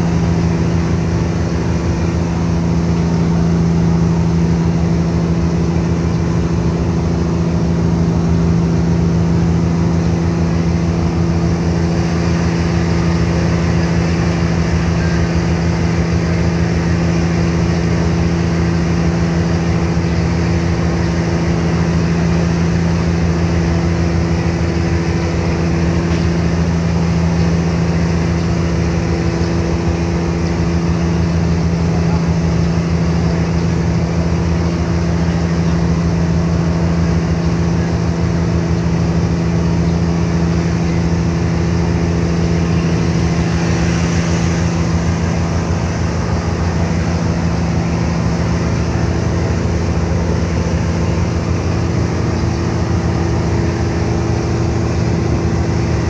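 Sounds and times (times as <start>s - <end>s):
ship engines humming: 0.0s - 56.0s
wind: 0.0s - 56.0s
water hissing: 36.6s - 56.0s.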